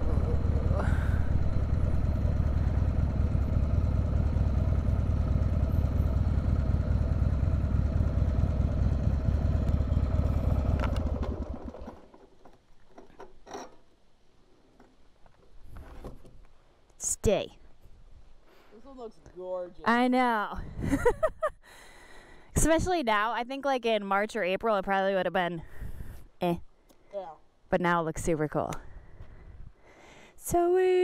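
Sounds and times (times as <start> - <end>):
motorcycle engine running: 0.0 - 12.1.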